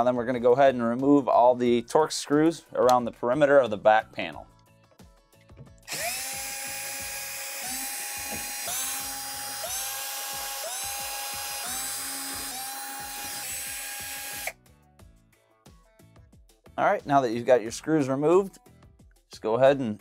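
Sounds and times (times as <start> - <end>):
power screwdriver whining: 5.9 - 14.6.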